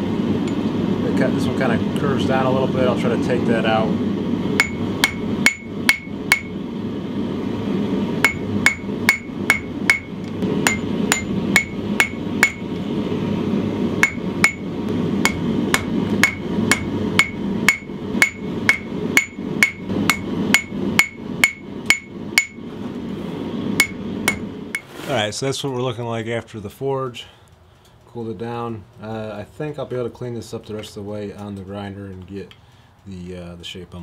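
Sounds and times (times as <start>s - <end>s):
hammer striking hot steel on anvil: 4.6s - 6.6s, 8.2s - 12.8s, 14.0s - 22.6s, 23.8s - 24.9s.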